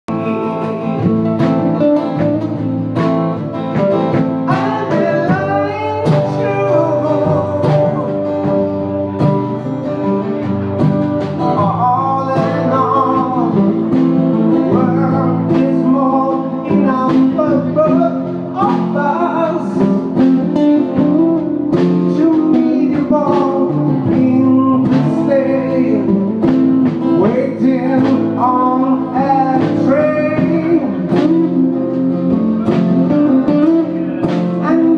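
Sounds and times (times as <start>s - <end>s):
man singing into microphone: 0.1s - 1.2s, 4.4s - 8.8s, 11.5s - 32.9s, 33.9s - 34.9s
drum kit: 0.1s - 34.9s
strummed acoustic guitars: 0.1s - 34.9s.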